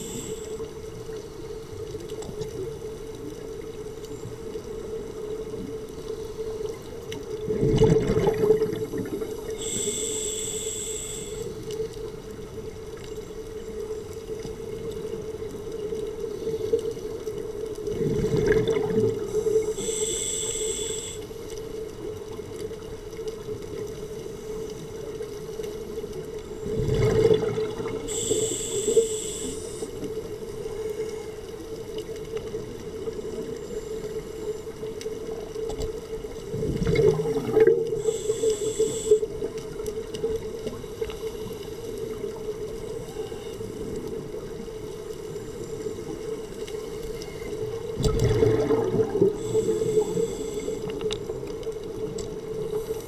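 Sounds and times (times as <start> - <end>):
hissing inhale through regulator: 0.0 - 0.7, 9.0 - 11.7, 19.2 - 21.5, 27.9 - 30.0, 37.8 - 39.4, 48.6 - 51.1, 52.6 - 53.0
steady hum: 0.0 - 1.7, 8.0 - 11.9, 19.1 - 21.7, 26.5 - 31.4, 37.4 - 39.5, 45.2 - 51.4
exhaled bubbles gurgling: 0.0 - 21.1, 21.7 - 53.0.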